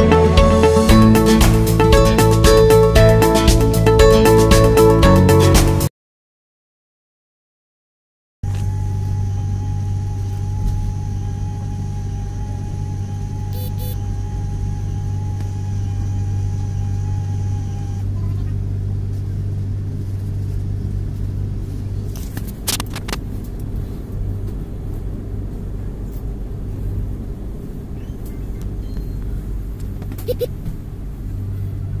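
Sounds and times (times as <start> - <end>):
high steady tone: 0.0 - 5.5, 8.8 - 17.8
train interior rumble and hum: 8.4 - 32.0
sharp clicks: 22.4 - 23.2.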